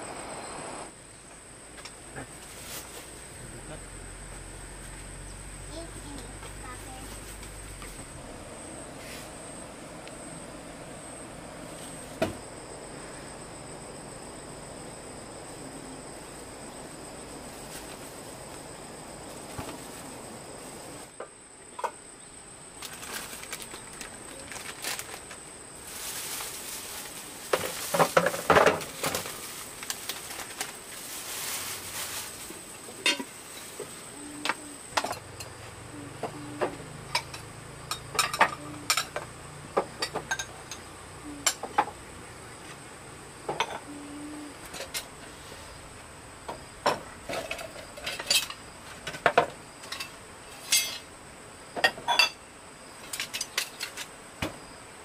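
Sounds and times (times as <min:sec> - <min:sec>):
high insect whine: 0:00.0 - 0:55.0
faint rustle: 0:01.8 - 0:10.5, 0:11.6 - 0:13.4, 0:15.4 - 0:21.1, 0:22.8 - 0:37.5, 0:42.4 - 0:46.1.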